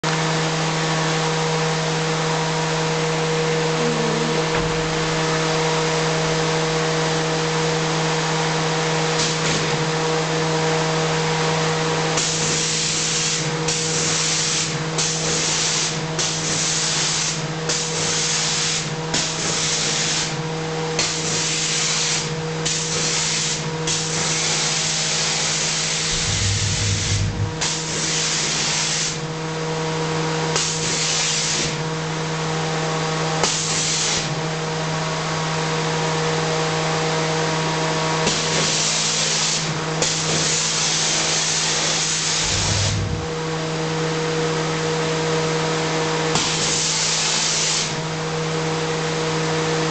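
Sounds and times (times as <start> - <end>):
steady machine hum: 0.1 - 9.2, 25.4 - 28.5, 42.3 - 45.0.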